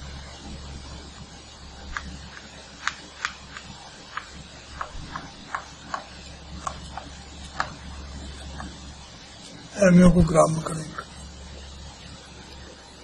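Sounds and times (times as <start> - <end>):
chalk tapping on blackboard: 1.8 - 8.9.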